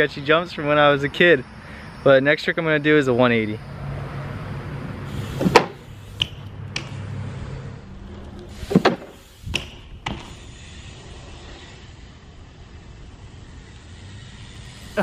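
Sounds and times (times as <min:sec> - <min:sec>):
bike knocking on wooden jump: 0:05.4 - 0:06.9, 0:08.6 - 0:10.4.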